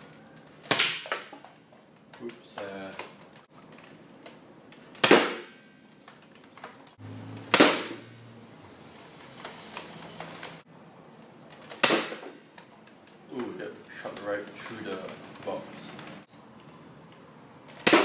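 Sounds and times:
air blaster pops: 0.6 - 1.4, 4.9 - 5.6, 7.5 - 8.1, 11.6 - 12.5, 17.7 - 18.0.

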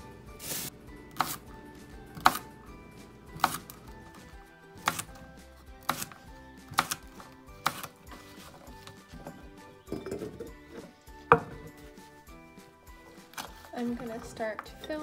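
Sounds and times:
background music: 0.0 - 15.0
knife chopping on wooden board: 1.1 - 1.4, 2.1 - 2.5, 3.3 - 3.8, 4.8 - 5.2, 5.8 - 8.0, 11.3 - 11.8.

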